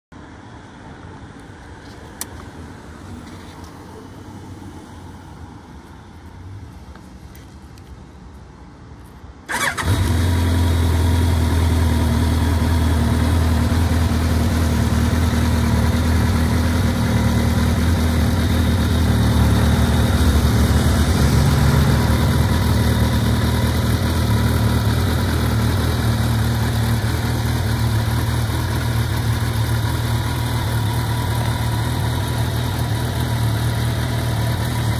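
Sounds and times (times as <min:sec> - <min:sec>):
click: 0:01.4 - 0:02.5
motorcycle engine starting and idling: 0:09.4 - 0:34.9.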